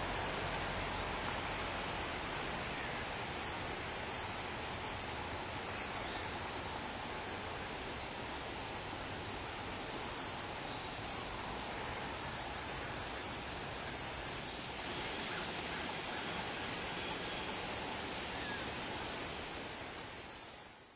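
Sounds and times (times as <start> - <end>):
faint insect chirps: 0.0 - 20.9
high-pitched insect trill: 0.0 - 20.9.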